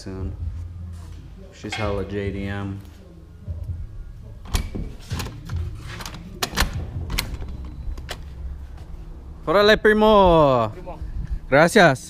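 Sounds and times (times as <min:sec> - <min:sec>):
footsteps: 0:00.9 - 0:03.0.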